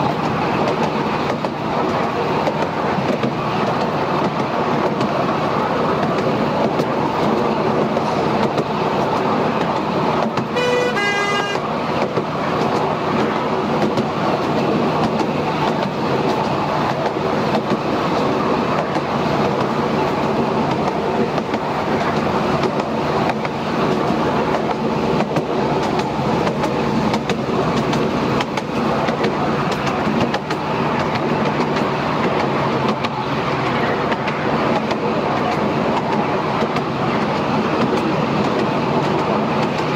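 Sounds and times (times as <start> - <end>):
train wheels rattling on rails: 0.0 - 39.9
train horn toot: 10.5 - 11.7.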